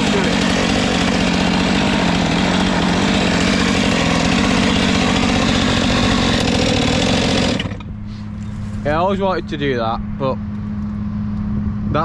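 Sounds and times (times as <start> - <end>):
chainsaw running at high revs: 0.0 - 7.9.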